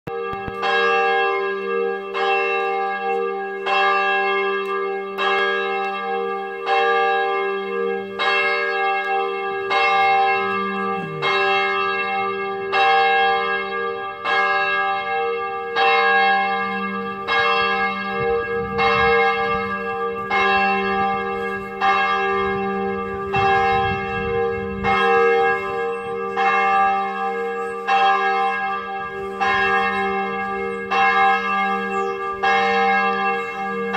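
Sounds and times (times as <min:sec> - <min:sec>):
church bells ringing: 0:00.1 - 0:33.9.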